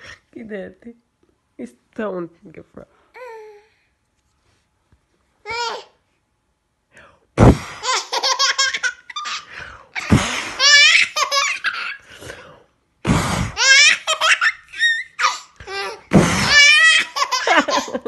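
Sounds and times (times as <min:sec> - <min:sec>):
short puff of breath: 0:07.4 - 0:07.8, 0:09.6 - 0:10.6, 0:12.0 - 0:13.6, 0:16.1 - 0:16.6
baby laughing: 0:07.8 - 0:12.1, 0:13.6 - 0:18.0.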